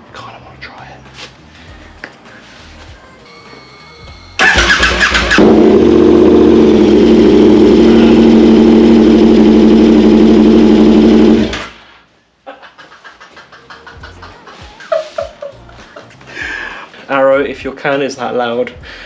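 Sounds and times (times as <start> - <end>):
engine starter cranking: 4.4 - 6.9
motorcycle engine idling loudly: 4.4 - 11.5.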